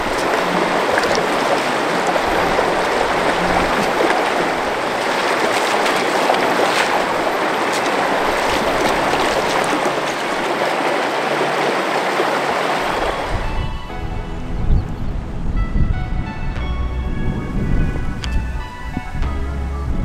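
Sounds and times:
feet splashing through water: 0.0 - 13.5
stream rushing over rocks: 0.0 - 13.7.

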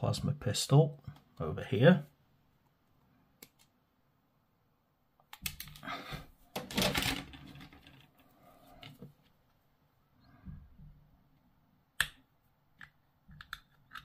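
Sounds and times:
plastic frame rustling: 6.4 - 9.4.

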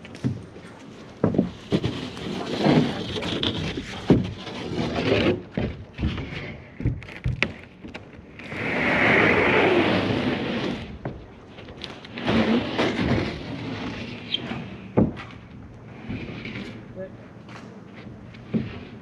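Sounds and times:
footsteps on roof sheathing: 0.0 - 8.5, 10.5 - 19.0
board scraping: 0.2 - 19.0
knocks and thuds on wood: 1.2 - 2.0, 5.5 - 8.0, 14.9 - 16.2.

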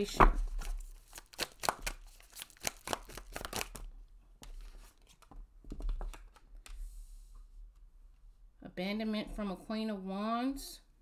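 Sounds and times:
cards being shuffled: 0.0 - 6.5.

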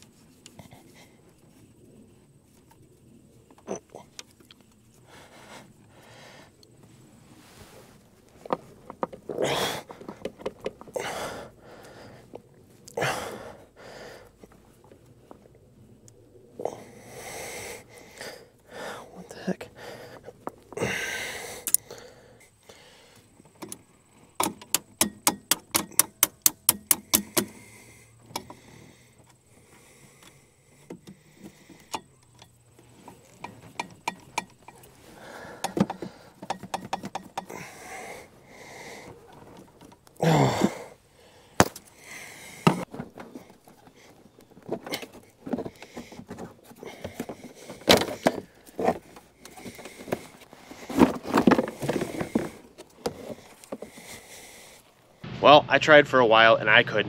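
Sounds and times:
hand tool quick clicks: 24.4 - 27.6.

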